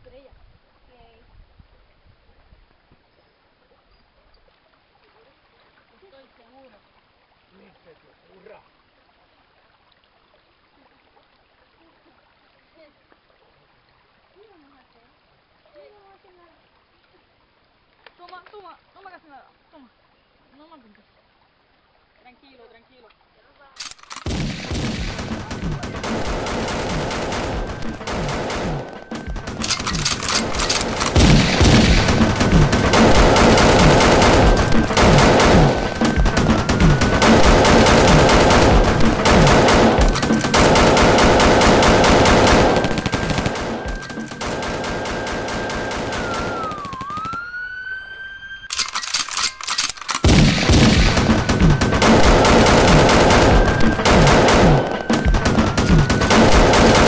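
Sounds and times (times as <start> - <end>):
machine-gun fire: 23.8 - 47.5, 48.7 - 57.0.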